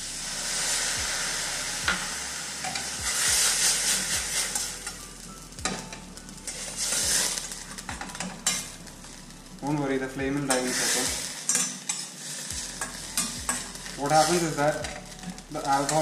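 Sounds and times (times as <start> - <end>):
mushrooms sizzling loudly in pan: 0.0 - 16.0
metal spatula scraping pan: 10.5 - 16.0.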